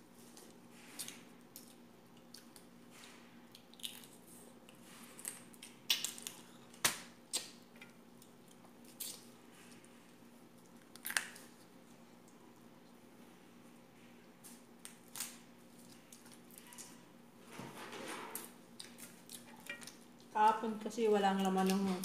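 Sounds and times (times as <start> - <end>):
faint steady hum: 0.0 - 22.0
chewing: 0.3 - 6.6, 18.7 - 20.3.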